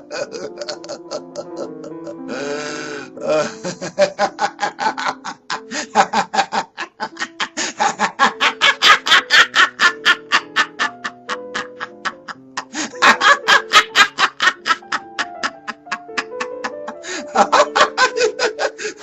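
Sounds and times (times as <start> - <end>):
old man laughing maniacally: 0.0 - 19.0
hissing rush of breath: 7.6 - 7.8.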